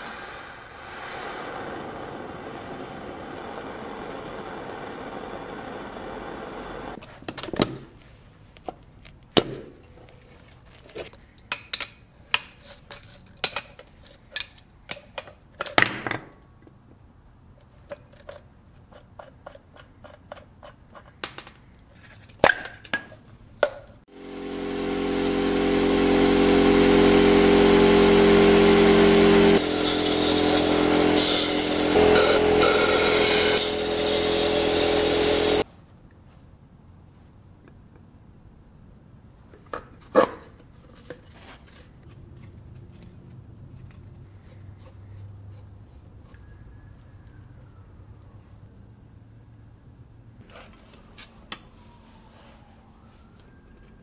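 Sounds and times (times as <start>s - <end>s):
mechanical running noise: 0.0s - 7.0s, 24.1s - 35.6s
power tool motor running: 0.0s - 7.0s, 24.1s - 35.6s.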